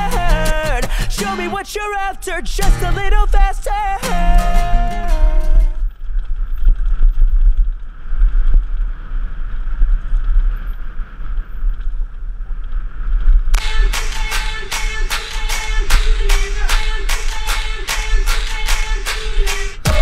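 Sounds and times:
music: 0:00.0 - 0:01.6, 0:02.6 - 0:03.1, 0:04.0 - 0:05.8, 0:13.6 - 0:20.0
wind rumble on microphone: 0:05.6 - 0:13.6.

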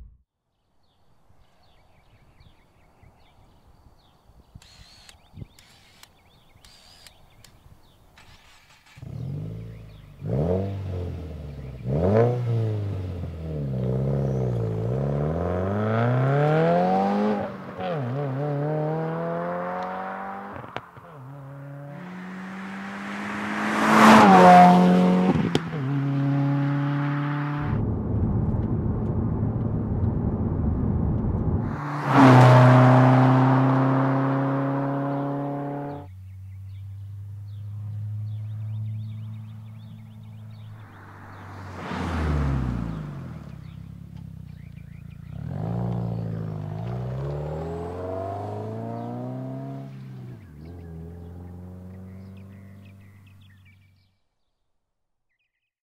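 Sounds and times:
car engine revving: 0:08.2 - 0:53.7
car passing loudly: 0:10.2 - 0:28.1, 0:31.5 - 0:36.1, 0:38.1 - 0:44.1, 0:45.2 - 0:53.0.

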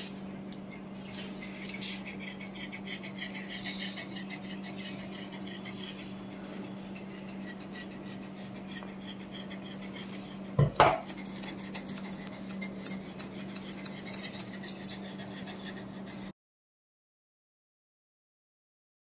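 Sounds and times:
steady low hum: 0:00.0 - 0:16.3
scissors snipping hair: 0:11.0 - 0:15.0.

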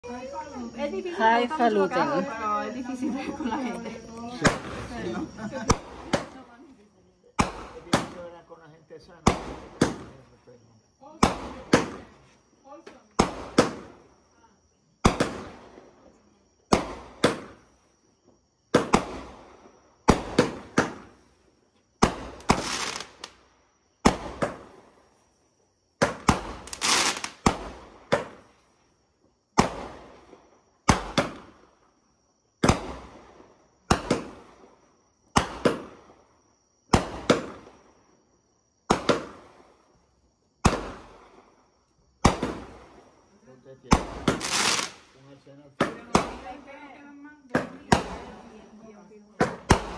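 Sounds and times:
firework bangs: 0:03.4 - 0:06.6, 0:07.3 - 0:10.4, 0:11.0 - 0:12.2, 0:13.0 - 0:14.2, 0:15.0 - 0:17.8, 0:18.7 - 0:21.4, 0:22.0 - 0:25.1, 0:26.0 - 0:28.6, 0:29.5 - 0:31.9, 0:32.6 - 0:38.0, 0:38.8 - 0:39.9, 0:40.6 - 0:41.6, 0:42.2 - 0:46.8, 0:47.5 - 0:48.6, 0:49.4 - 0:49.9.

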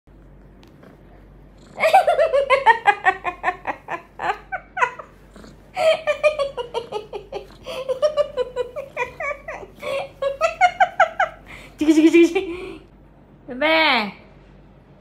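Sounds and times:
person giggling: 0:01.8 - 0:12.9.

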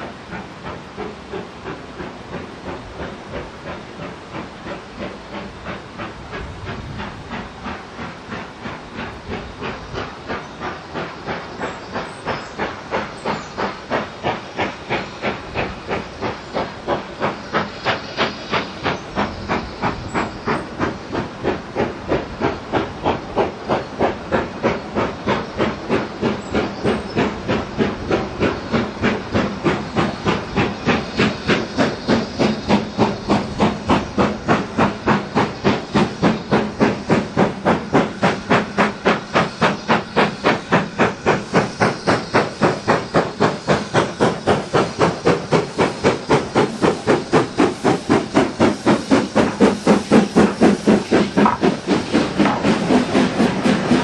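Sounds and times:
steam locomotive exhaust beats: 0:00.0 - 0:54.0.

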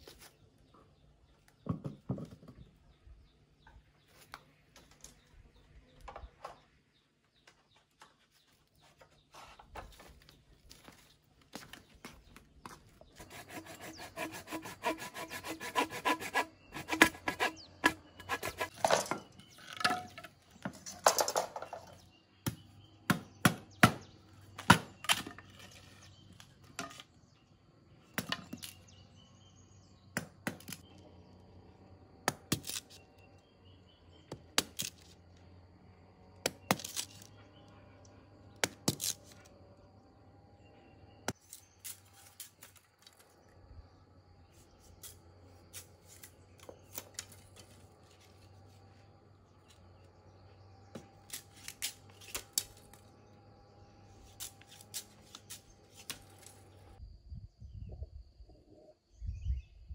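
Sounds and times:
sawing bamboo: 0:13.1 - 0:19.0, 0:54.2 - 0:56.6
cleaver cracking bamboo: 0:30.2 - 0:30.8, 0:32.2 - 0:33.0, 0:34.5 - 0:35.1, 0:36.4 - 0:37.3, 0:38.6 - 0:39.4, 0:41.3 - 0:43.3, 0:51.0 - 0:53.1, 0:54.3 - 0:56.6.

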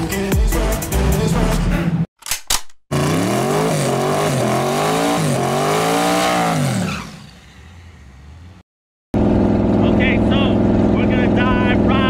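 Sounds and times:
car engine revving: 0:02.9 - 0:08.6.

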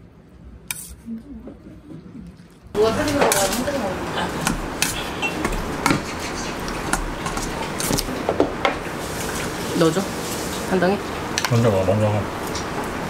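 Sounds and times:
room noise: 0:00.0 - 0:13.0
utensils clinking on metal bowl: 0:02.8 - 0:08.1.

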